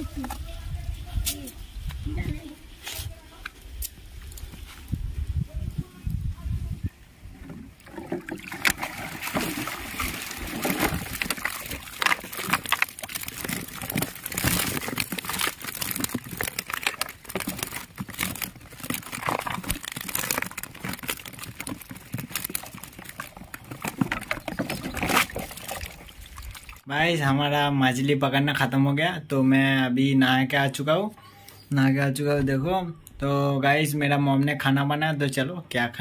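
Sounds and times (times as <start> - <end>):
water sloshing and dripping: 7.3 - 26.9
fish flapping in wet net: 7.9 - 26.8.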